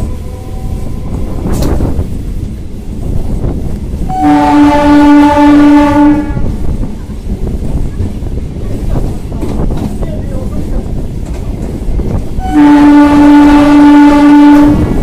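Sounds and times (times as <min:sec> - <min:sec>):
train horn blast: 0:00.0 - 0:01.5, 0:04.1 - 0:06.6, 0:12.4 - 0:15.0
train wheels rumbling on track: 0:00.0 - 0:15.0.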